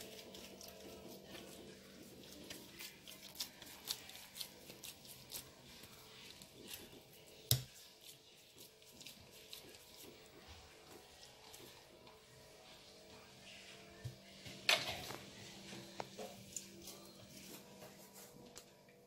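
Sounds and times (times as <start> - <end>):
hands squelching wet dough: 0.0 - 13.5.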